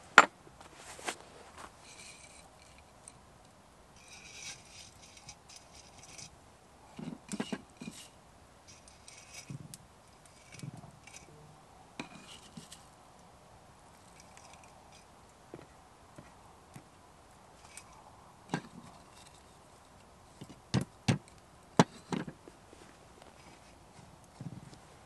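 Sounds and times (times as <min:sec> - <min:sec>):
pine needles rustling: 0:00.0 - 0:03.2, 0:03.9 - 0:06.4, 0:12.2 - 0:13.0, 0:13.7 - 0:20.4, 0:22.4 - 0:25.0.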